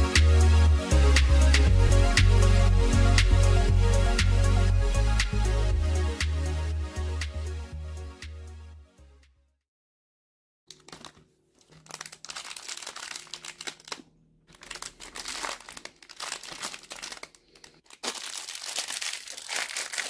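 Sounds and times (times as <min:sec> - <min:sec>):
plastic packaging crinkling: 0:10.7 - 0:20.0.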